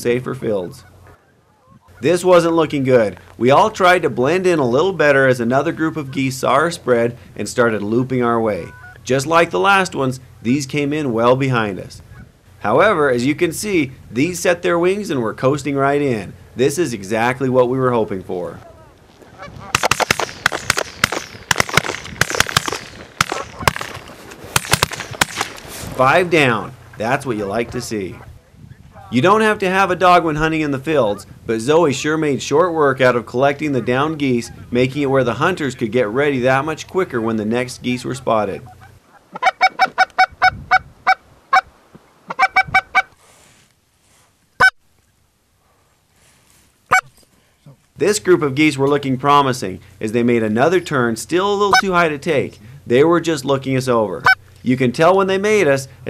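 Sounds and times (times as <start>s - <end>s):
geese honking: 0.3s - 2.8s, 5.4s - 6.8s, 8.4s - 10.6s, 18.6s - 20.3s, 25.2s - 32.2s, 33.0s - 41.7s, 42.3s - 43.2s, 46.9s - 47.1s, 51.6s - 52.1s, 54.2s - 54.5s
shotguns firing: 19.7s - 26.0s.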